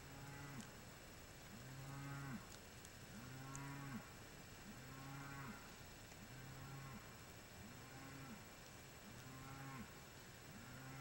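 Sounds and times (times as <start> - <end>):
faint low bullfrog calls: 3.1 - 11.0.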